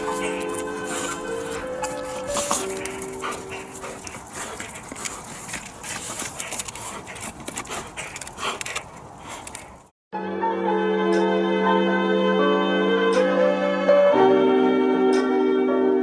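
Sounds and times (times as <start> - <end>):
background music: 0.0 - 4.2, 10.2 - 16.0
dog gnawing on a stick: 0.0 - 9.9
dog heavy breathing: 0.0 - 9.9.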